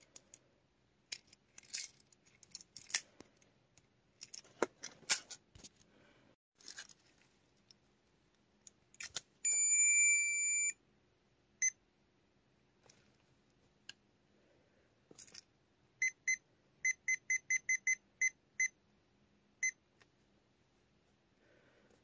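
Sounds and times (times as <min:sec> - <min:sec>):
plastic toy clicks and rustles: 0:01.1 - 0:05.4
short electronic beep: 0:09.5 - 0:10.8.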